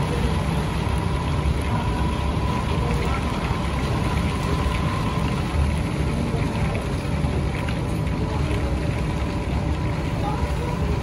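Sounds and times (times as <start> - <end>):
faint high whine: 0.0 - 6.6.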